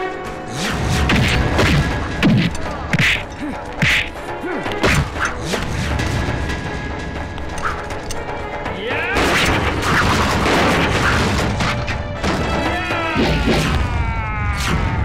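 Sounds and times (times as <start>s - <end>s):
background music: 0.0s - 15.0s
dubbed punches and whacks: 0.5s - 4.2s, 4.8s - 5.9s
punch swishes: 0.5s - 4.2s, 4.8s - 5.7s.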